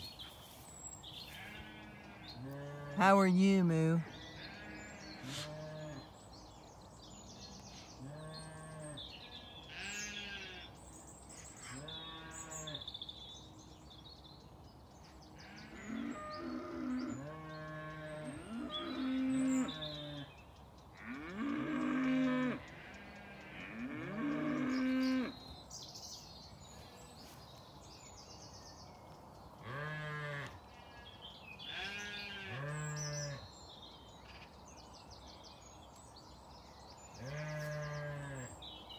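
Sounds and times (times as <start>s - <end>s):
sheep bleating: 1.3s - 3.0s, 9.6s - 10.7s, 22.4s - 24.7s.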